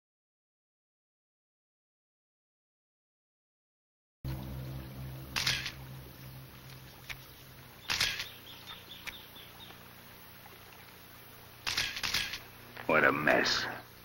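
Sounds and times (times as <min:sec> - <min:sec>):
low steady hum: 0:04.2 - 0:14.0
camera shutter clicking: 0:05.4 - 0:05.8, 0:07.8 - 0:08.4, 0:11.6 - 0:12.5.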